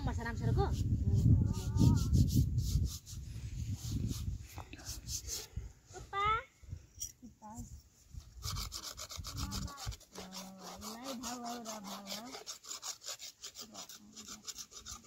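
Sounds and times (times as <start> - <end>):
hand tool rasping plastic pipe: 8.4 - 15.0.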